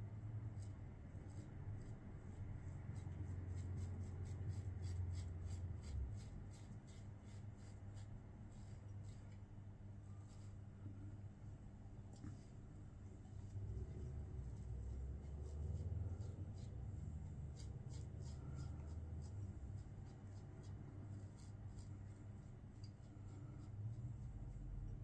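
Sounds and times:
low steady hum: 0.0 - 25.0
razor scraping through stubble: 0.5 - 9.4, 13.7 - 24.6.

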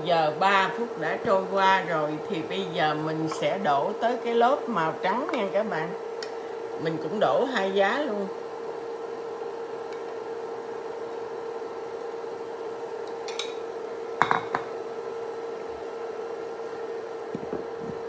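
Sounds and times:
steady hum: 0.0 - 18.0
bowl set down on stone counter: 14.2 - 14.7.

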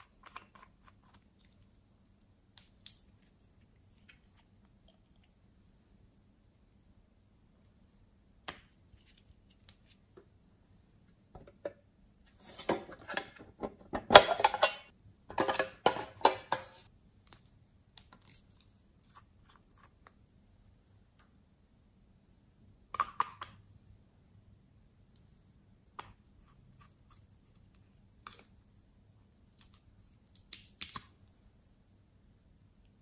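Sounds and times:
metal tin clattering and scraping: 14.0 - 16.9.

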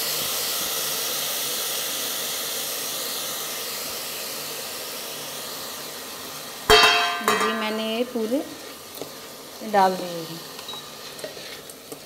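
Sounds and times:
rice sizzling in ghee: 0.0 - 12.0
metal pan struck clang: 6.7 - 7.8.

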